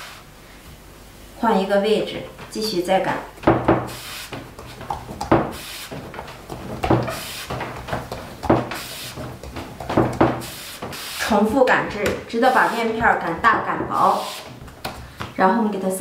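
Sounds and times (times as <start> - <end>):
rolling pin knocking and rumbling: 3.4 - 12.3.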